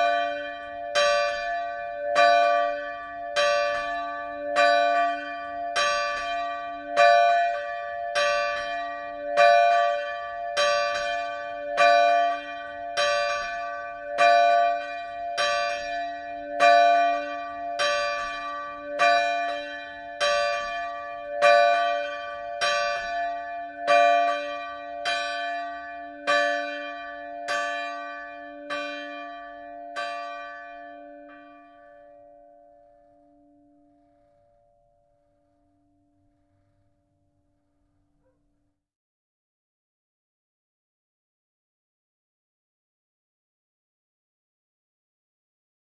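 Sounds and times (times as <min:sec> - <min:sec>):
swinging church bell ringing: 0:00.0 - 0:34.8.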